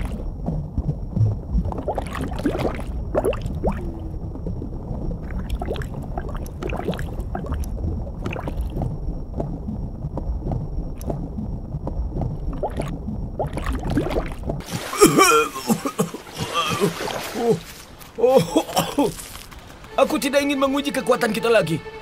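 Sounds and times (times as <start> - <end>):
low underwater rumble: 0.0 - 18.2
underwater bubbling: 0.0 - 19.0.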